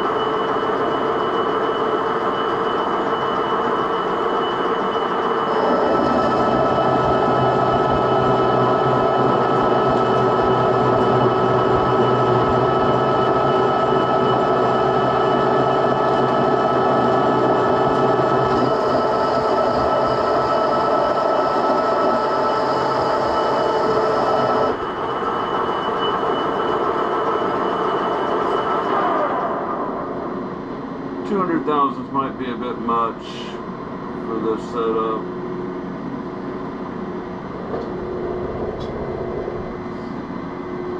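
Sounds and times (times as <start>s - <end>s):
gears whining: 0.0s - 30.6s
metal lathe running: 0.0s - 31.2s.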